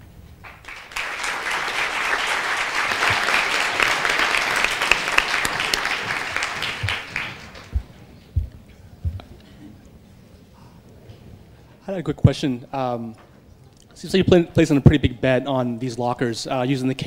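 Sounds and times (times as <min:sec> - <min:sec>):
audience applauding: 0:00.4 - 0:08.0.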